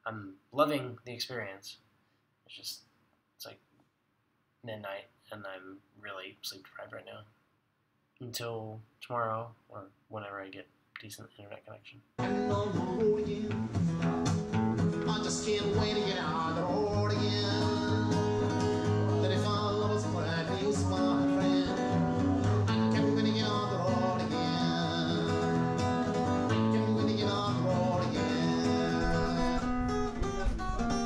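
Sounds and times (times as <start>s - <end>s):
acoustic guitar strumming: 12.2s - 31.0s
man singing: 12.2s - 31.0s.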